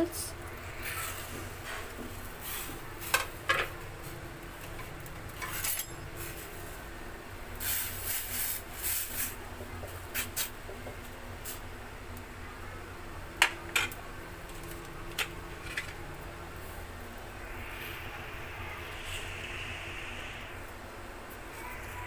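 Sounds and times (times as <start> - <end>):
steady low hum: 0.0 - 7.6, 8.7 - 22.0
steel kitchenware clinking: 5.4 - 6.1.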